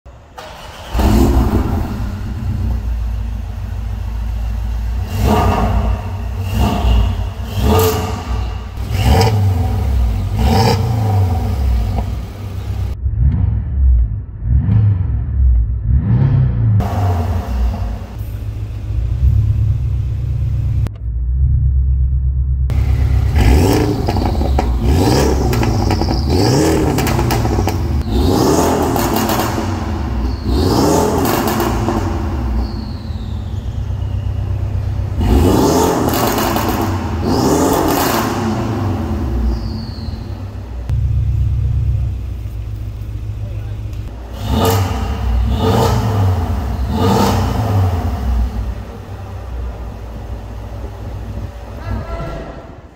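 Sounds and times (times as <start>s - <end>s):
car engine idling: 0.1s - 13.2s, 16.8s - 52.9s
car engine revving: 0.2s - 52.9s
exhaust crackles and pops: 19.2s - 32.6s.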